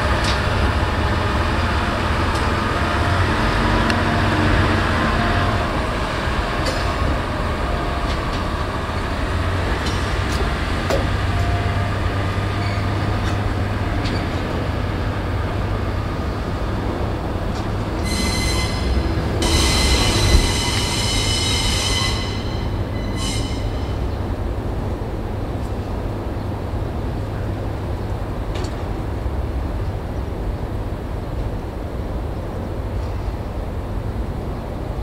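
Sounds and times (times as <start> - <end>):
locomotive engine rumble: 0.0 - 35.0
wheels squealing on rails: 9.7 - 14.6, 17.6 - 24.3.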